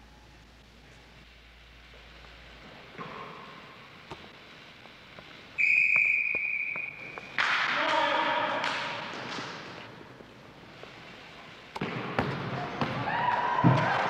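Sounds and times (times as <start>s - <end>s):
referee whistle blast: 5.6s - 7.3s.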